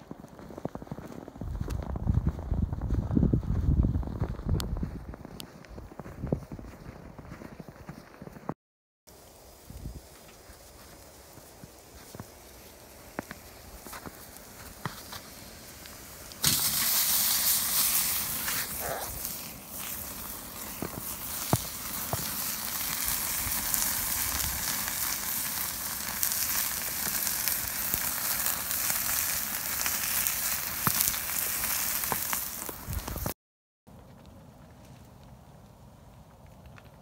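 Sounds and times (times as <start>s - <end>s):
pops and crackles: 0.0s - 6.2s, 10.1s - 33.4s, 36.1s - 37.0s
steak sizzling in grill pan: 9.4s - 33.3s.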